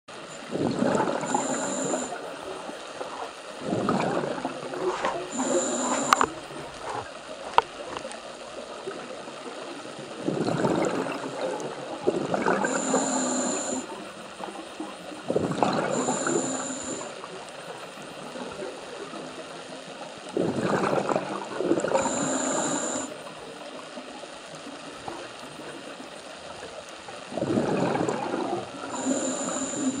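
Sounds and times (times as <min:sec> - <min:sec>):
gurgling exhaled bubbles: 0:00.4 - 0:02.1, 0:03.6 - 0:07.2, 0:10.1 - 0:13.2, 0:15.2 - 0:16.5, 0:20.3 - 0:22.7, 0:27.2 - 0:29.8
hissing regulator inhales: 0:01.2 - 0:02.2, 0:05.3 - 0:06.3, 0:12.6 - 0:13.9, 0:15.9 - 0:17.1, 0:22.0 - 0:23.2, 0:29.0 - 0:30.0.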